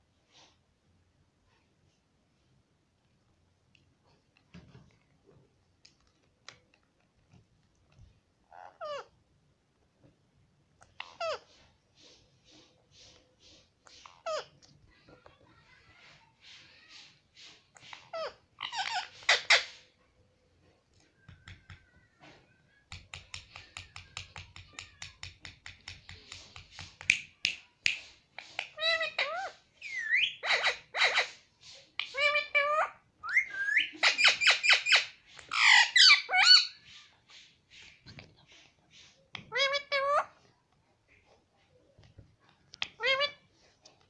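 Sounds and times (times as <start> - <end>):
parakeet squawky chattering calls: 17.8 - 19.8, 28.6 - 31.4, 32.0 - 37.5.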